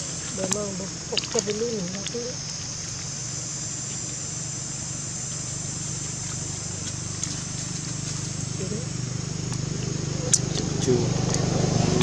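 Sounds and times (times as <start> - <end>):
high-pitched insect drone: 0.0 - 12.0
low steady hum: 0.0 - 12.0.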